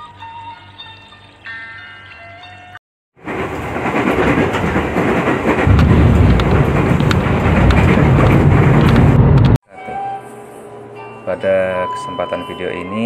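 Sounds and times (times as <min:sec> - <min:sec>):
moving vehicle rumbling: 0:03.2 - 0:09.6.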